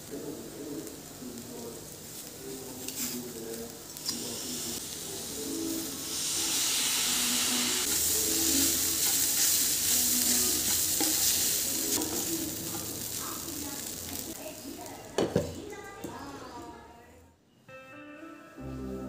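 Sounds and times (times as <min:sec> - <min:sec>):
food sizzling: 0:00.0 - 0:16.8
spatula stirring in frying pan: 0:02.0 - 0:14.5.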